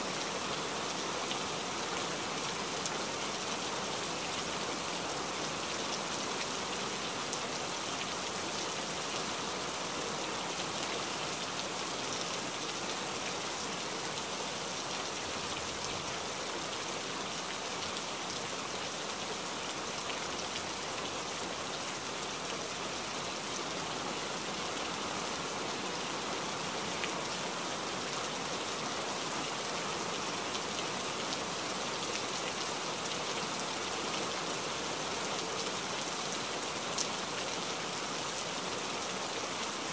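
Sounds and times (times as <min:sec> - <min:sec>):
steady rain: 0:00.0 - 0:39.9.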